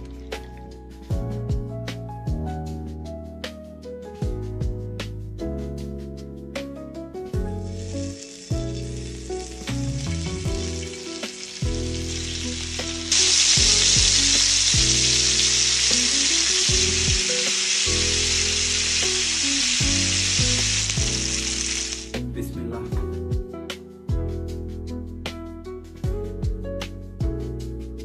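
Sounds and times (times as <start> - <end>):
background music: 0.0 - 28.0
meat sizzling in oil: 7.6 - 22.2.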